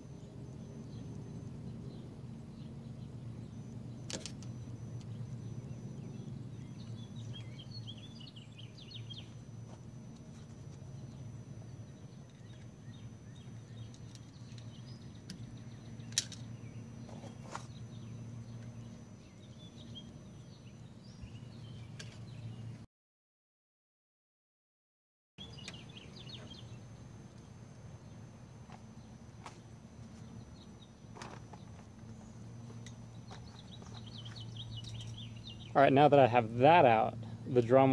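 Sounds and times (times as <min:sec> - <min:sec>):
low outdoor hum: 0:00.0 - 0:22.9, 0:25.4 - 0:37.9
faint bird chirps: 0:00.1 - 0:22.8, 0:28.9 - 0:35.9.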